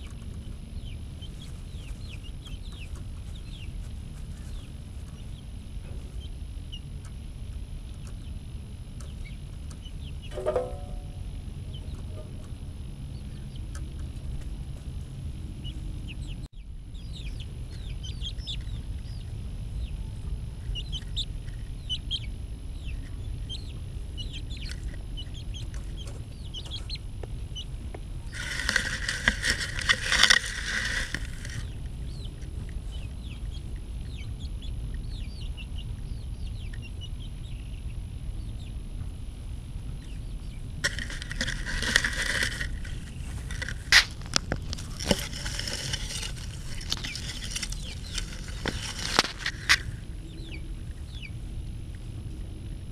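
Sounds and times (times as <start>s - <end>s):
chicks peeping: 0.0s - 52.9s
rustling noise: 28.3s - 31.8s, 40.8s - 50.0s.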